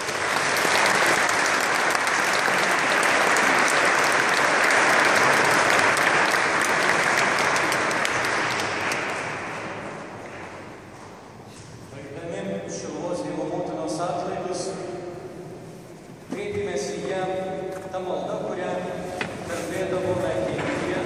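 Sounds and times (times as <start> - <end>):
crowd applauding: 0.0 - 9.9.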